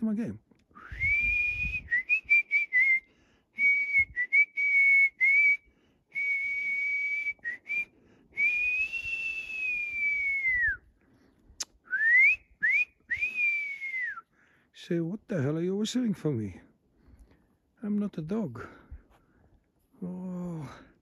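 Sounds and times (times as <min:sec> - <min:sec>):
person whistling: 0:00.8 - 0:10.9, 0:11.8 - 0:14.2.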